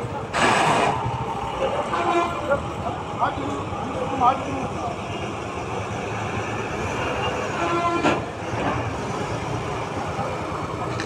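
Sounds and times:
traffic noise: 0:00.0 - 0:11.0
vehicle horn: 0:01.9 - 0:02.5, 0:07.3 - 0:08.2.

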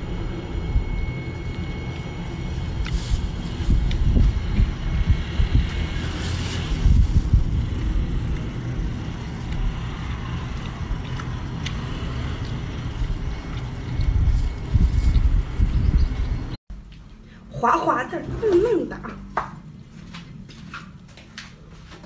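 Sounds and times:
wind buffeting microphone: 0:01.8 - 0:16.6.

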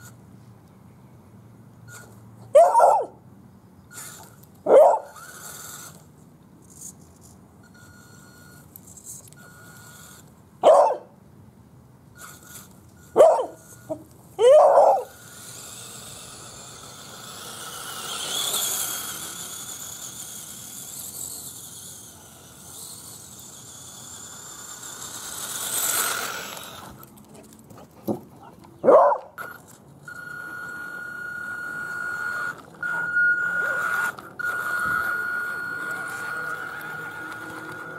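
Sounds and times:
dog barking: 0:02.5 - 0:03.2, 0:04.7 - 0:05.1, 0:10.6 - 0:11.1, 0:13.2 - 0:13.6, 0:14.4 - 0:15.1, 0:28.8 - 0:29.3
electric motor whining: 0:03.9 - 0:06.1, 0:12.2 - 0:27.2, 0:29.3 - 0:37.9.

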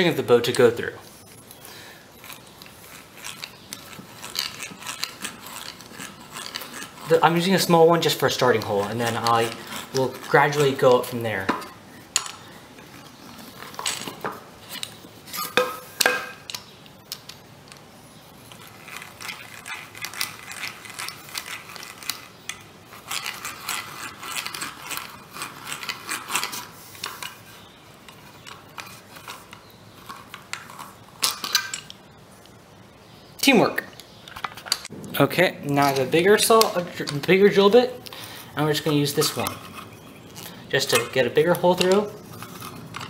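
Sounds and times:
hand drill gears whirring: 0:01.4 - 0:11.5, 0:18.4 - 0:31.8, 0:35.7 - 0:43.0.

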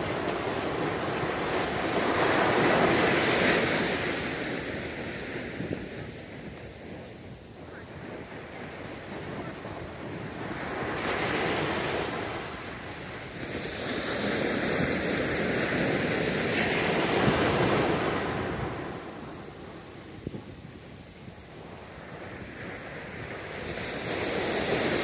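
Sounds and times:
ocean surf on sandy beach: 0:00.0 - 0:25.0.

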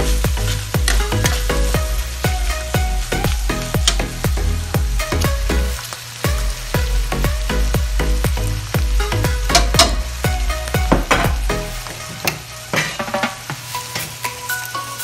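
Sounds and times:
background music with steady beat: 0:00.0 - 0:15.0
meat and vegetables sizzling in wok: 0:00.0 - 0:15.0
metal spatula scraping wok: 0:11.1 - 0:15.0.

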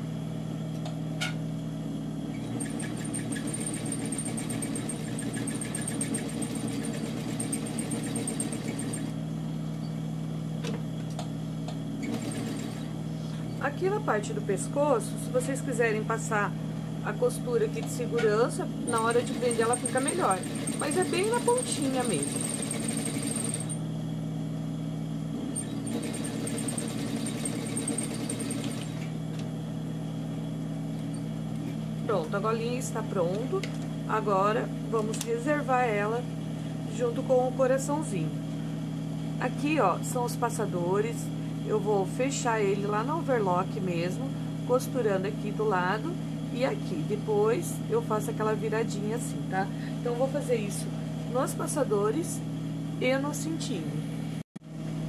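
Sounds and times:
sewing machine stitching: 0:02.4 - 0:09.1, 0:12.0 - 0:12.9, 0:18.9 - 0:23.8, 0:25.6 - 0:29.0.

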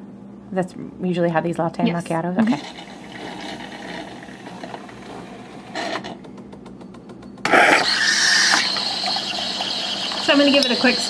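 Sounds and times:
espresso machine humming: 0:02.4 - 0:11.0
milk steamer hissing: 0:02.5 - 0:06.0, 0:07.5 - 0:11.0
rapid pump clicks: 0:06.0 - 0:07.5.

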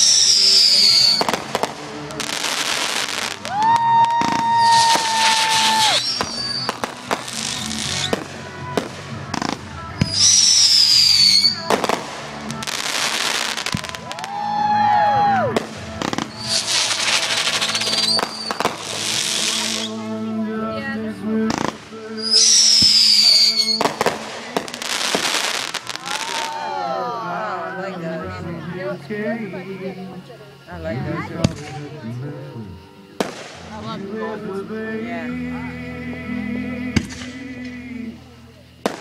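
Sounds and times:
fireworks bangs and crackling: 0:00.0 - 0:20.1, 0:21.4 - 0:26.7, 0:31.2 - 0:31.9, 0:33.1 - 0:33.9, 0:37.0 - 0:37.6, 0:38.8 - 0:39.0
fireworks falling whistles: 0:00.0 - 0:20.2, 0:21.4 - 0:26.8, 0:32.5 - 0:34.2, 0:37.0 - 0:37.8, 0:38.8 - 0:39.0
background music: 0:00.0 - 0:39.0.

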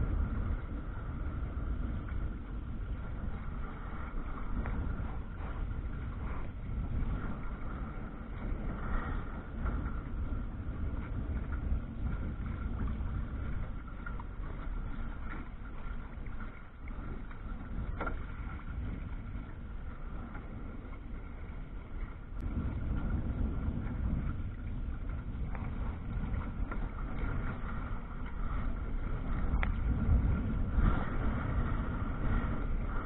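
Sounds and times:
water washing against hull: 0:00.0 - 0:33.0
wind on microphone: 0:00.0 - 0:33.0.

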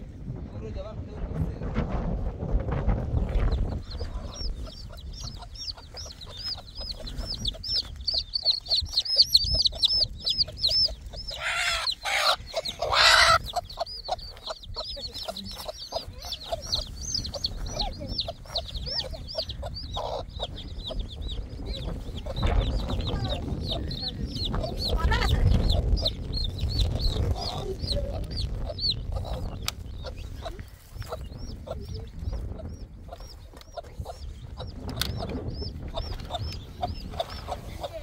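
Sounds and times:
chicks peeping: 0:01.5 - 0:38.0
hen calling: 0:03.8 - 0:21.2.

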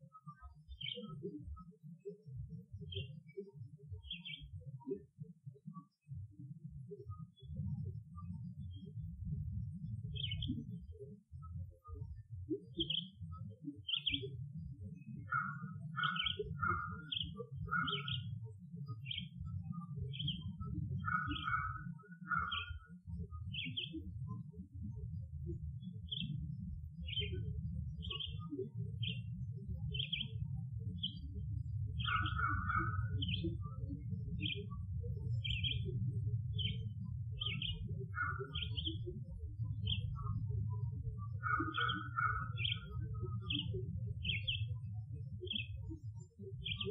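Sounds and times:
bird high chirps: 0:15.3 - 0:18.3, 0:19.0 - 0:23.0, 0:32.0 - 0:34.8, 0:35.4 - 0:39.2, 0:39.8 - 0:40.5, 0:41.2 - 0:44.8.

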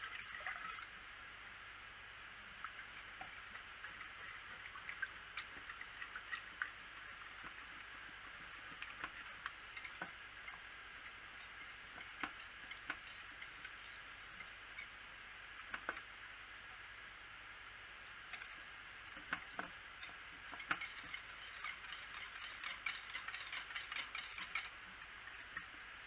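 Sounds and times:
faint steady hiss: 0:00.0 - 0:26.0
whisk tapping against a pot: 0:02.7 - 0:15.0, 0:19.2 - 0:24.8.

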